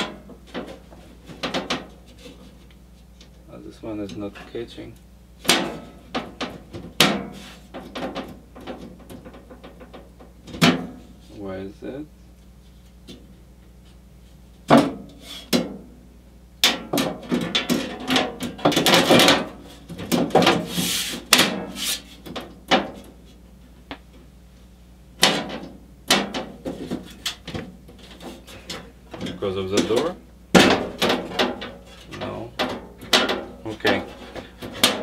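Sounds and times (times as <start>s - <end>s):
panel rattling and scraping: 16.7s - 23.2s, 25.2s - 35.0s.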